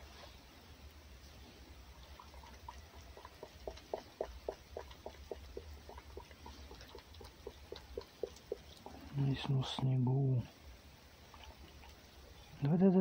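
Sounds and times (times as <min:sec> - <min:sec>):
fox lapping from a saucer: 0:01.9 - 0:09.8, 0:11.2 - 0:12.2.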